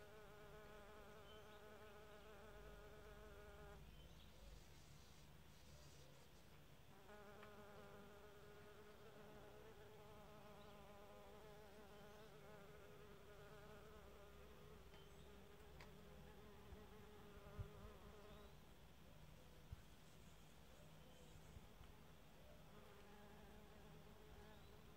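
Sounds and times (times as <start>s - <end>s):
bee buzzing: 0.0s - 3.8s, 6.9s - 18.4s, 22.7s - 24.9s.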